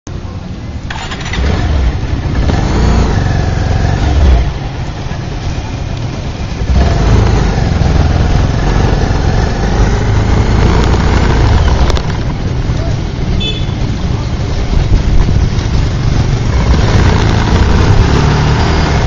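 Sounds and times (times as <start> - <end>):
road noise: 0.0 - 19.0.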